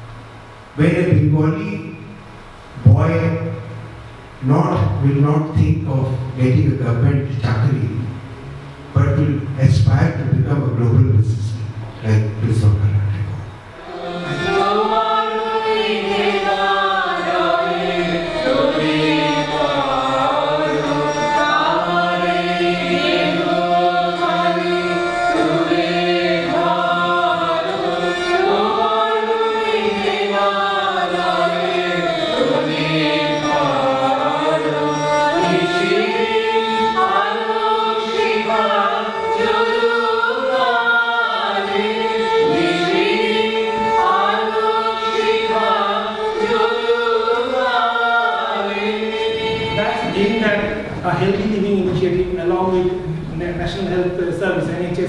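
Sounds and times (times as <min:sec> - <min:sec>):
group singing together: 0:13.5 - 0:53.0.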